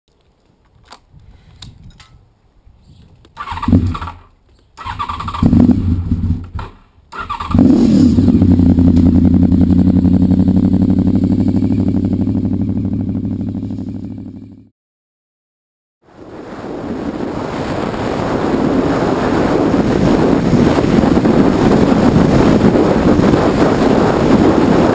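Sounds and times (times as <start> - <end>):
motorcycle starter cranking: 6.5 - 7.8
motorcycle engine idling: 7.6 - 14.7.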